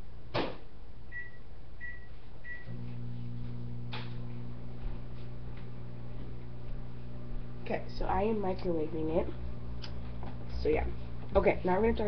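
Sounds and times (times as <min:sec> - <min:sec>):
microwave oven humming: 0:01.0 - 0:12.0
microwave oven click: 0:03.9 - 0:04.2.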